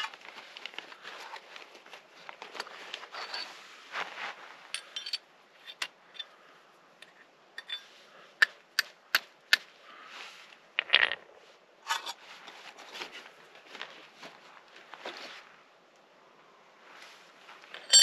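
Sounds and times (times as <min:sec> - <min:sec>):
scraping rustle: 0:00.0 - 0:05.0, 0:09.9 - 0:15.6.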